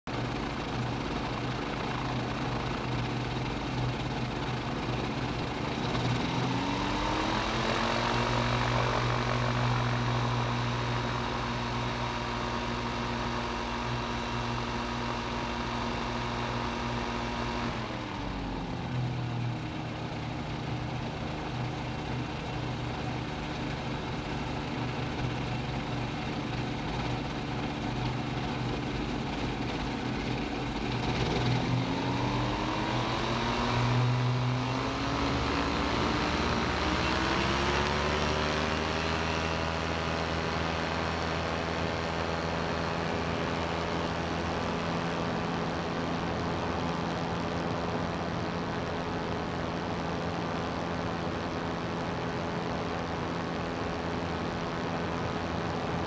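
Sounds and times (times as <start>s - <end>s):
ultralight engine and propeller: 0.0s - 56.0s.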